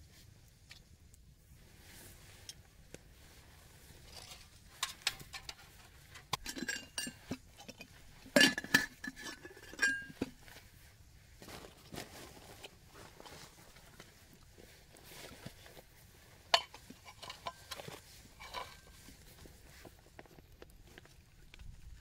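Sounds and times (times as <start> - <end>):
metal canister and mug clinking: 4.1 - 10.4, 16.5 - 19.1.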